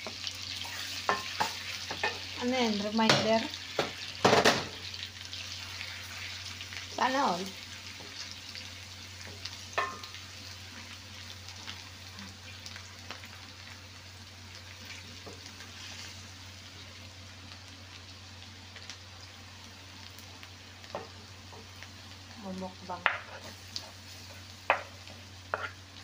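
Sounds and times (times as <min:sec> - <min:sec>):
garlic sizzling in butter: 0:00.0 - 0:26.0
wooden spoon stirring in pot: 0:23.1 - 0:25.8.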